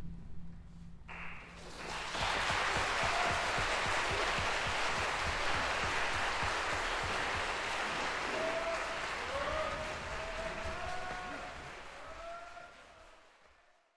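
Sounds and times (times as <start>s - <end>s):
audience applauding: 1.1s - 13.9s
people shouting: 2.6s - 7.1s, 7.9s - 12.7s.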